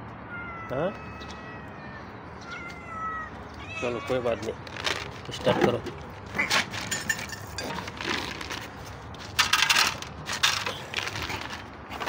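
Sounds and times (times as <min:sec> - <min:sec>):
dry kibble rattling into bowl: 0:04.4 - 0:12.0.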